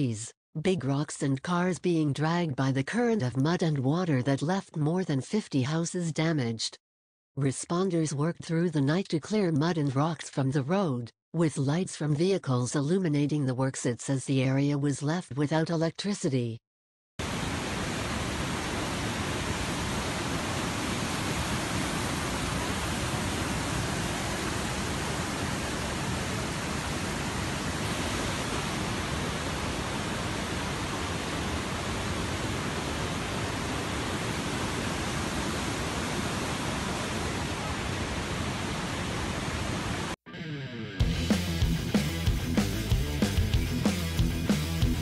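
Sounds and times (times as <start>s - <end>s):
floodwater rushing: 17.2s - 40.0s.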